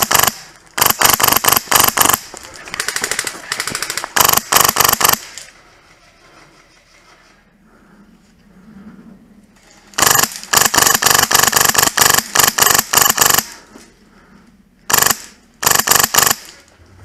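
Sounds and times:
airsoft gun firing: 0.0 - 5.3, 10.0 - 13.6, 14.9 - 16.6.

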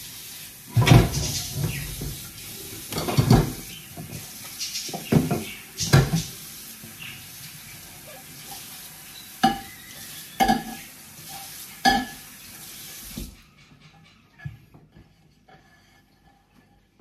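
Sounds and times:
tap running into sink: 0.7 - 7.0, 9.4 - 13.4.

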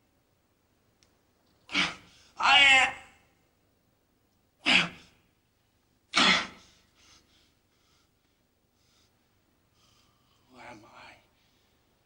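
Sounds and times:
faint breathing: 6.6 - 10.6, 11.2 - 12.0.

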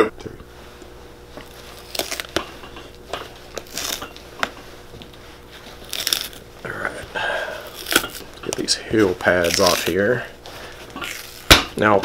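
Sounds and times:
rubber tearing and crunching: 1.4 - 2.4, 3.5 - 4.4, 5.7 - 6.7, 7.6 - 10.2, 11.0 - 12.0.

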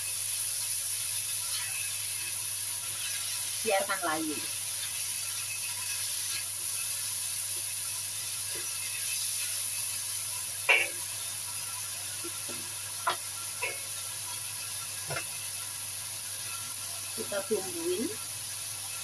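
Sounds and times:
food sizzling in hot oil: 0.0 - 19.0
spatula scraping a wok: 1.4 - 15.4.

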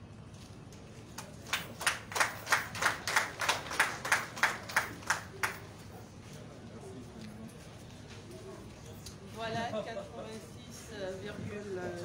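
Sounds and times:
people clapping in rhythm: 1.1 - 5.8.

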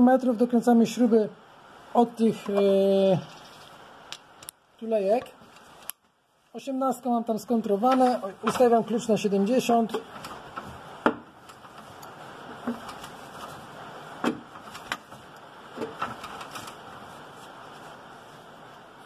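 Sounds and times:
faint workshop hiss: 0.0 - 19.0
hand tools clicking and knocking: 7.8 - 9.0.

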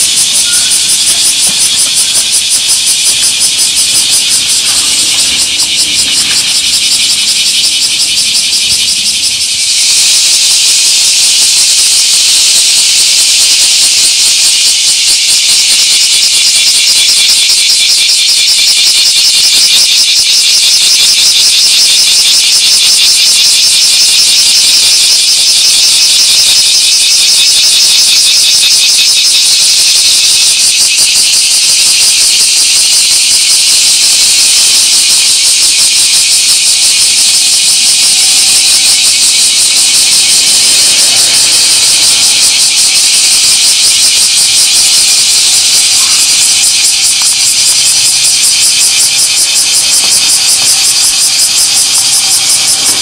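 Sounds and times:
cicadas buzzing: 0.0 - 53.0.

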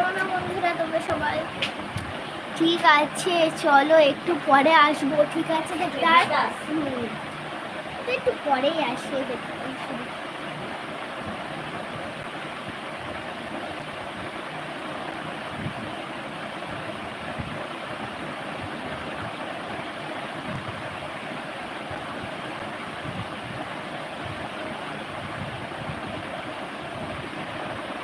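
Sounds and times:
ceiling fan running: 0.0 - 28.0
wind buffeting microphone: 10.7 - 21.2, 21.9 - 28.0.

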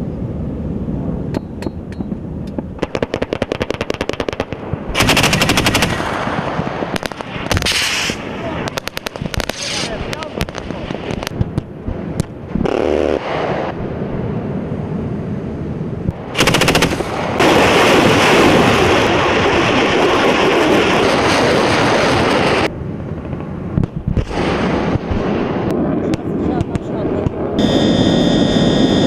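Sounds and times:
automatic weapon fire: 2.8 - 11.3, 16.3 - 21.3
scattered gunshots: 2.8 - 11.3, 12.6 - 13.7, 16.3 - 22.7
rocket launcher salvo: 4.3 - 11.3, 12.5 - 13.9.

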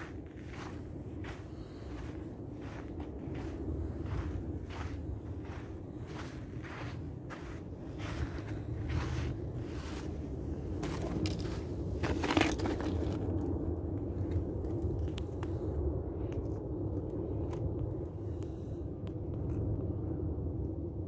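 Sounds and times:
footsteps crunching on rubble: 0.0 - 13.6
steady low rumble: 0.0 - 21.0.

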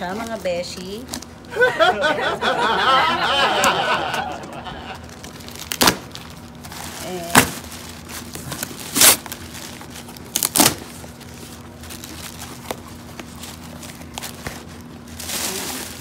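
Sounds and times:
packing tape ripping: 5.0 - 16.0
paper and cardboard rustling: 5.0 - 16.0.

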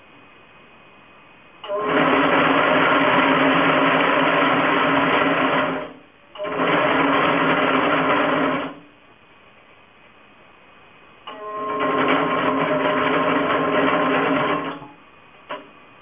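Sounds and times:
braiding machine whirring: 1.6 - 8.9, 11.3 - 14.9.

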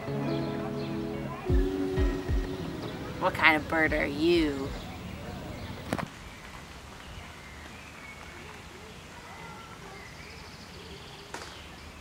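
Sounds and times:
faint background hiss: 0.0 - 12.0.

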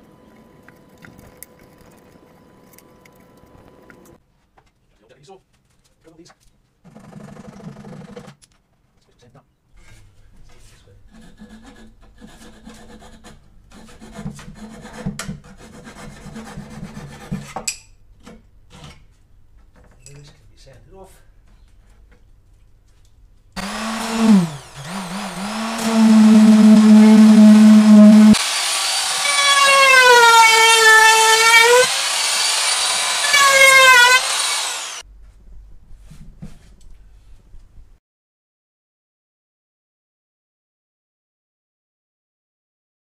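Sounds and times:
pull saw cutting wood: 23.6 - 35.0
router high-pitched whine: 23.6 - 35.0.

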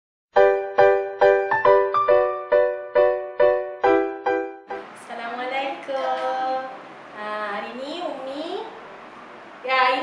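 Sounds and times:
keyboard playing repeated chords: 0.4 - 4.9.

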